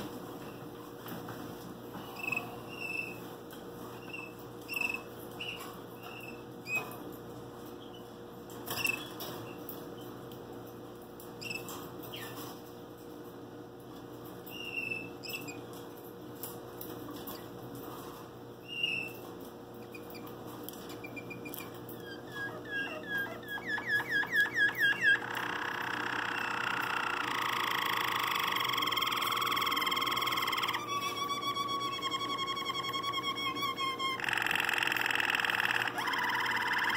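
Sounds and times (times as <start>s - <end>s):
canary singing: 2.2s - 3.2s, 4.0s - 6.9s, 14.5s - 15.7s, 18.6s - 19.2s, 19.8s - 36.9s.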